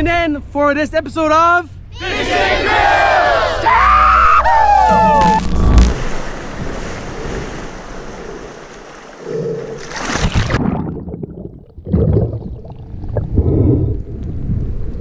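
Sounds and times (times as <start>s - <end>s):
underwater gurgles and thumps: 4.5s - 15.0s
splash: 4.7s - 11.3s
sea water sloshing: 4.7s - 13.4s.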